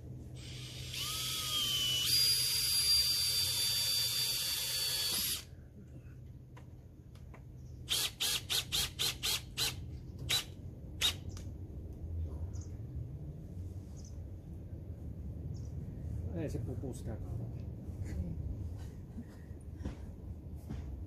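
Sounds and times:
power drill motor whining: 0.4s - 5.5s, 7.9s - 11.2s.

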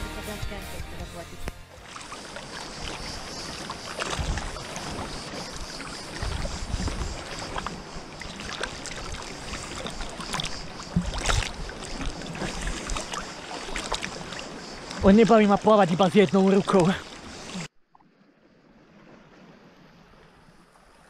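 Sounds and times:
seawater sloshing and lapping: 1.5s - 21.0s
waves washing over microphone: 1.8s - 17.7s.

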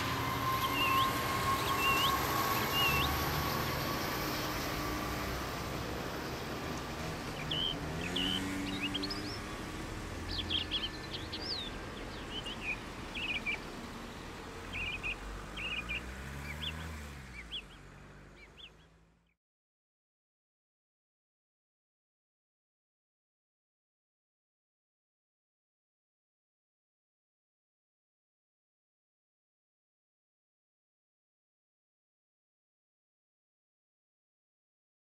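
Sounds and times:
birds chirping: 0.0s - 19.4s.

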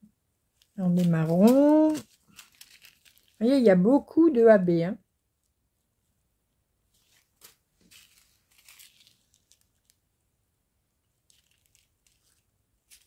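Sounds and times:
plastic bags crinkling: 0.6s - 3.6s, 7.0s - 10.0s, 11.2s - 13.0s.

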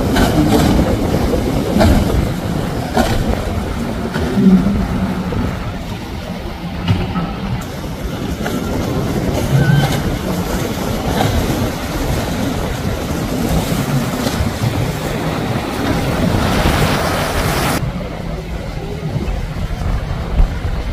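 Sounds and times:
outboard motors running: 0.0s - 20.9s
water spray rushing: 7.6s - 18.0s.

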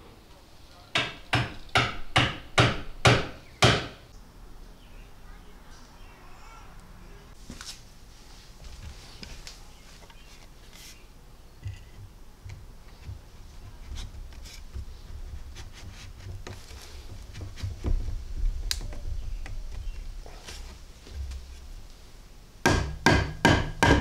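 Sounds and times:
light wooden knocks and rubbing: 11.6s - 21.7s.

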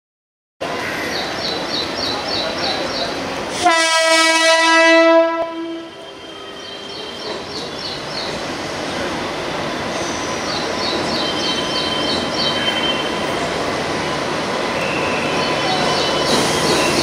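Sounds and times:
train horn blast: 3.6s - 6.7s
electric train running: 5.9s - 17.0s.

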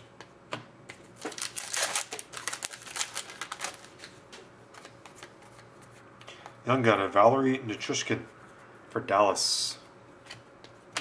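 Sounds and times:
wrapper crinkling and tearing: 1.2s - 4.0s.

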